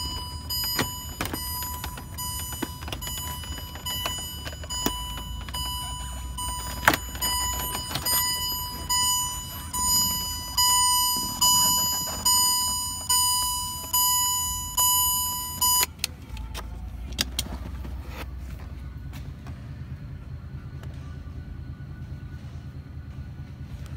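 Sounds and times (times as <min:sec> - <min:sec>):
dashboard warning chime: 0:00.0 - 0:15.9.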